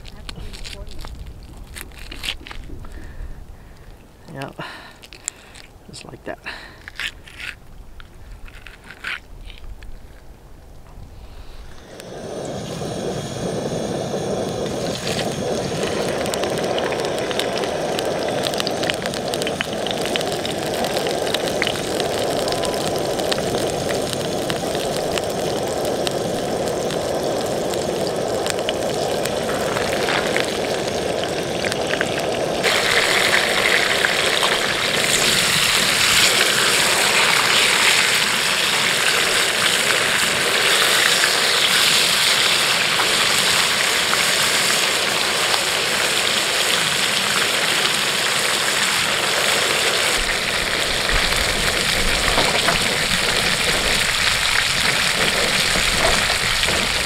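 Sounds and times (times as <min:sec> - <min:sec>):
camp stove burner roar: 0:10.9 - 0:57.0
fish sizzling in hot oil: 0:11.4 - 0:57.0.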